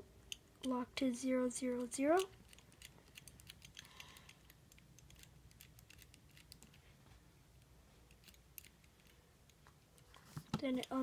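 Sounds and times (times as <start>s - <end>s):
padlock number wheels clicking: 1.7s - 6.6s.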